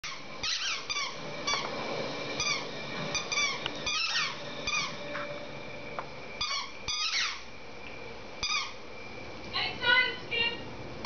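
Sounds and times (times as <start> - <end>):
squeaky dog toy squeaking: 0.0 - 1.2, 3.2 - 4.9, 6.4 - 7.4, 8.4 - 8.8.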